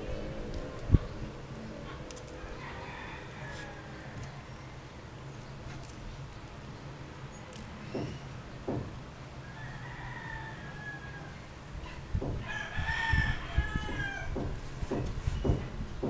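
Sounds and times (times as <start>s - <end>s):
soft bumps: 12.1s - 12.5s, 13.8s - 15.8s.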